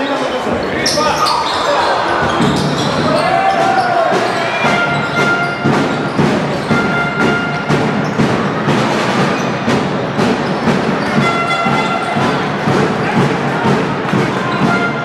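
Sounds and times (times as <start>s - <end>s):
music with steady beat: 2.4s - 15.0s.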